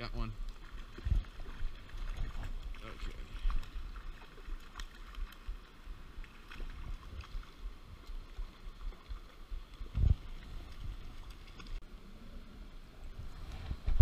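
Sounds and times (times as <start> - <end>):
faint creek water: 0.0 - 14.0
wind buffeting microphone: 0.7 - 4.4, 5.2 - 11.4, 13.1 - 14.0.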